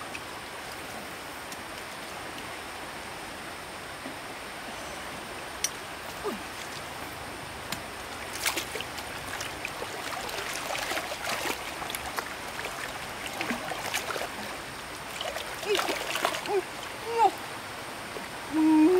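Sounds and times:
stream water trickling: 0.0 - 18.9
small splashes and drips: 7.7 - 17.4.

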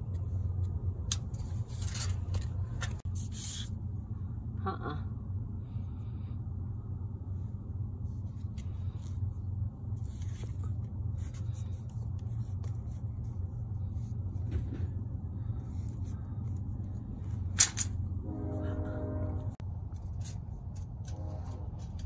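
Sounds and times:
low rumble: 0.0 - 22.0
tape measure clicks and rustles: 0.1 - 3.6, 17.5 - 18.0.

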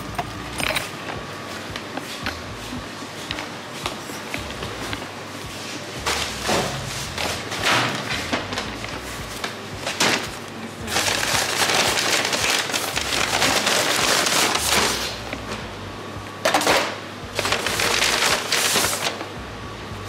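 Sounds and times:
paper bag rustling and crackling: 6.1 - 15.2, 16.5 - 19.3.

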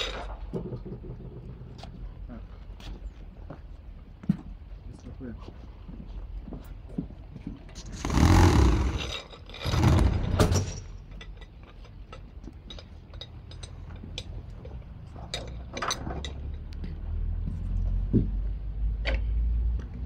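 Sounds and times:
rushing scraping noises: 7.8 - 10.8.

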